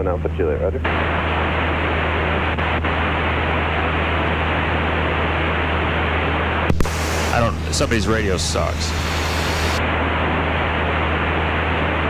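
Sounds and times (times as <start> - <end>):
aircraft engine drone: 0.0 - 12.0
radio channel hiss: 6.7 - 9.8
radio click: 6.7 - 9.8.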